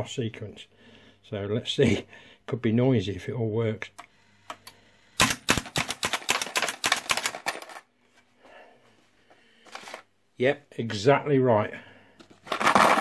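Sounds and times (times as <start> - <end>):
coin payout clicks and clatter: 5.2 - 7.8, 12.5 - 13.0.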